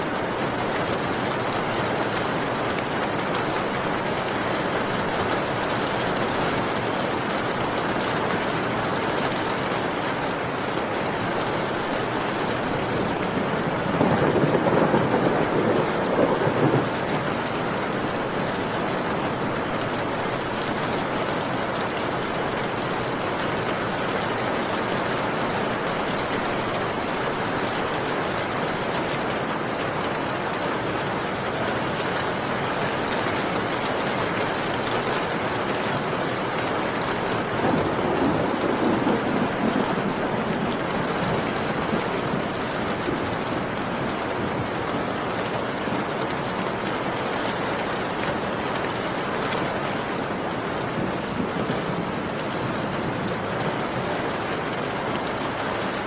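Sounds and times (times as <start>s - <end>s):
steady rain falling: 0.0s - 56.0s
thunder rumbling: 12.8s - 19.0s, 37.4s - 43.8s.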